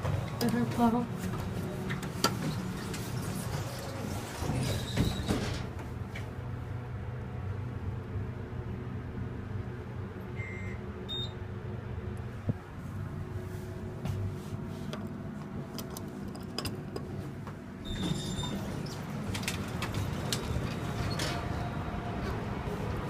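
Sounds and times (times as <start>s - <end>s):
elevator doors sliding open: 0.0s - 6.4s, 17.8s - 23.0s
elevator machinery hum: 0.0s - 23.0s.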